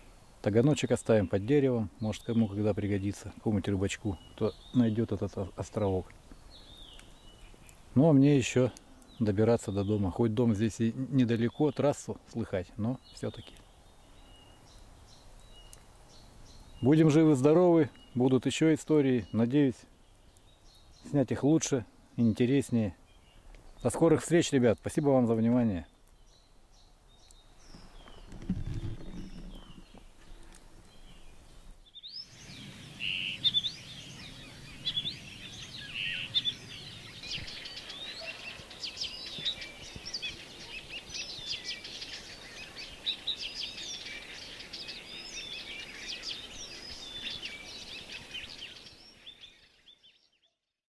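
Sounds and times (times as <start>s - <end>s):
small birds chirping: 0.0s - 50.8s.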